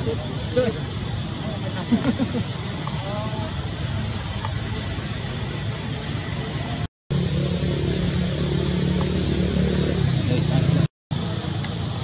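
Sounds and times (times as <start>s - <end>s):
high insect drone: 0.0s - 12.0s
motor engine running: 7.1s - 10.9s.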